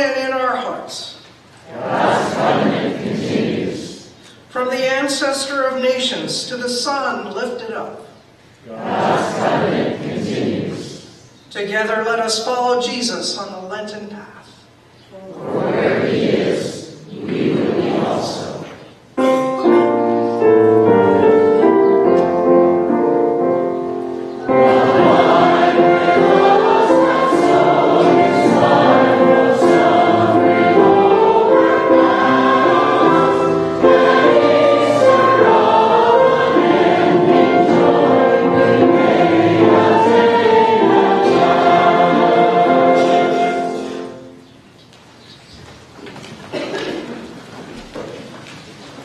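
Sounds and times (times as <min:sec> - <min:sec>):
church choir singing: 0:01.6 - 0:04.4, 0:08.7 - 0:11.3, 0:15.2 - 0:44.5
instrumental accompaniment: 0:19.2 - 0:44.5.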